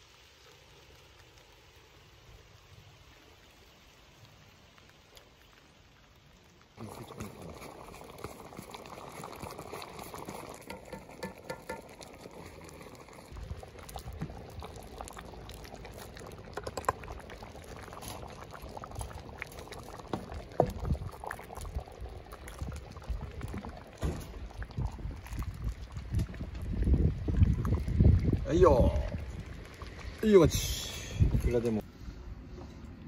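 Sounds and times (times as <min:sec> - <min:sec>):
stew bubbling in pot: 0:00.0 - 0:31.8
liquid splashes: 0:02.8 - 0:31.8
ladle knocking on wooden bowl: 0:10.6 - 0:12.0.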